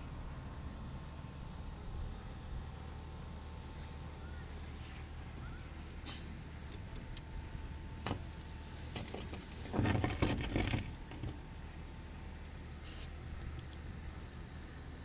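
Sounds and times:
steady low hum: 0.0s - 15.0s
rustling and knocking: 8.0s - 11.4s.

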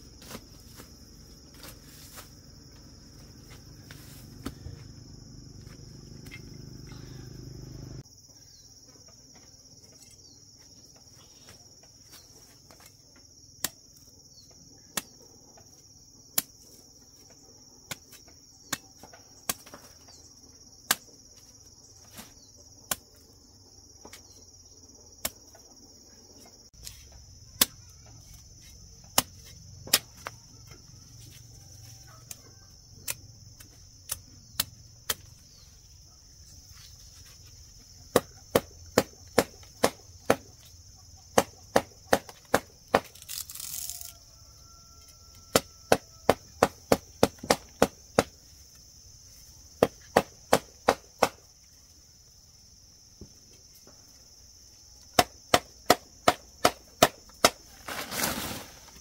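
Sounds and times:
crickets trilling: 0.0s - 59.0s
sharp chopping strikes: 38.1s - 40.5s, 49.8s - 51.4s.

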